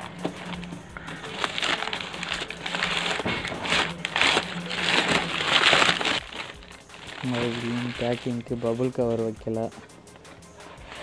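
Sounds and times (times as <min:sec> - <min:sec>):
newspaper crinkling and rustling: 0:00.0 - 0:08.9.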